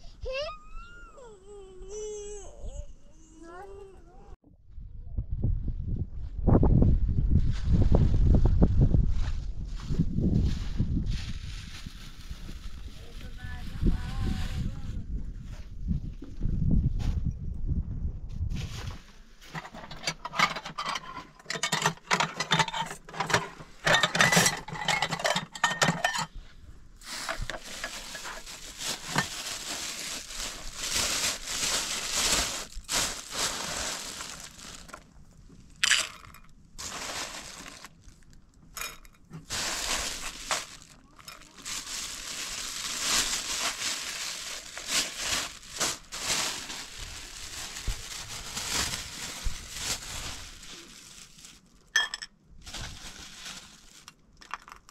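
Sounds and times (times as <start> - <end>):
crackling and rustling: 9.1 - 16.4, 18.5 - 26.4, 27.0 - 54.9
dishes and utensils clinking: 19.6 - 26.3.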